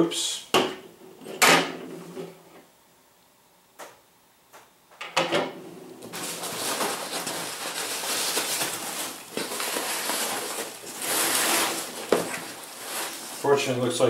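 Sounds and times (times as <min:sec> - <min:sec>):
packing peanuts and cardboard rustling: 0:06.1 - 0:14.0.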